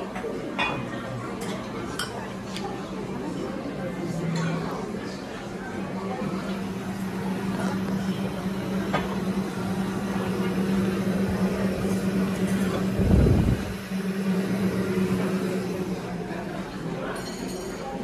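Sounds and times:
faint room chatter: 0.0s - 18.0s
steady low hum: 5.5s - 17.1s.

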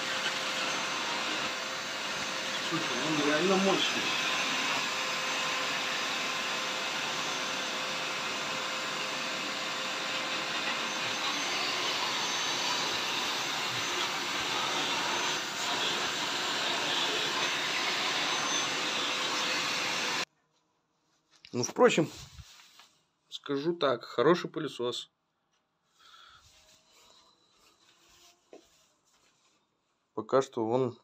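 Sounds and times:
vacuum cleaner running: 0.0s - 20.3s.

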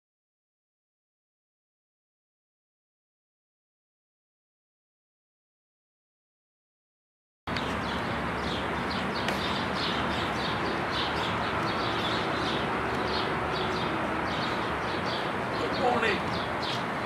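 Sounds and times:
small birds chirping: 7.5s - 17.0s.

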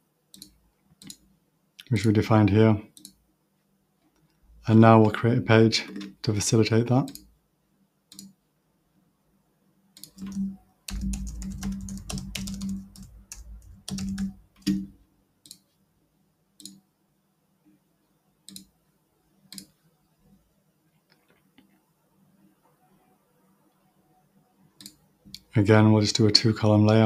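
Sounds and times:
mouse clicks: 8.1s - 8.4s, 16.6s - 16.8s, 18.5s - 18.7s, 24.8s - 25.5s
keyboard typing: 10.0s - 15.6s.

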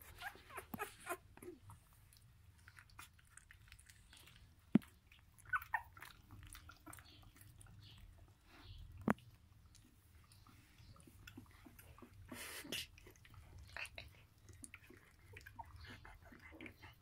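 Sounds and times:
puppies smacking and snuffling: 0.0s - 17.0s.

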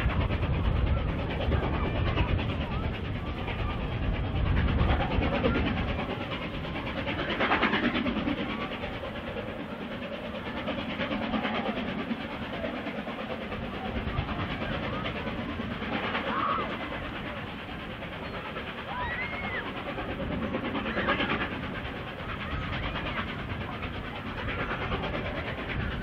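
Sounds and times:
distant steam locomotive working: 0.0s - 26.0s
children shouting: 16.2s - 17.4s, 18.8s - 19.9s.

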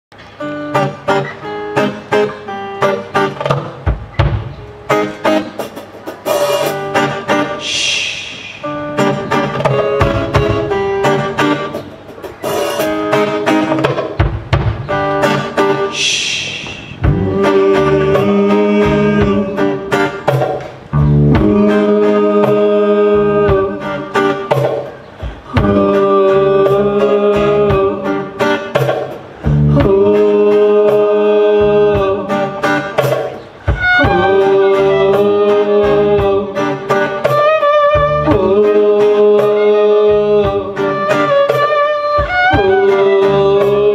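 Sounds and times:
folk-rock band playing: 0.1s - 43.9s
fiddle melody: 33.7s - 36.1s, 37.0s - 43.9s.

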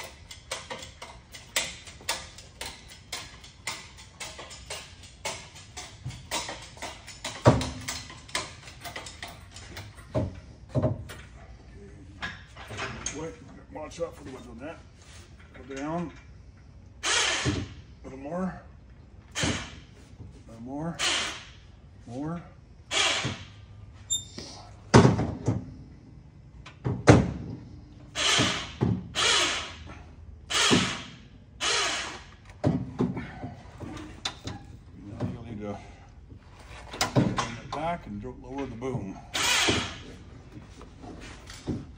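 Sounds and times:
metal knocks and clanks: 0.0s - 11.3s, 36.6s - 38.0s.

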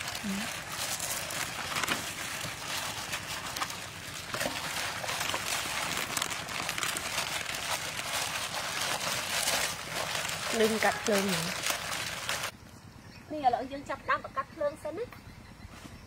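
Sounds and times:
plastic bags crinkling: 0.0s - 12.6s.

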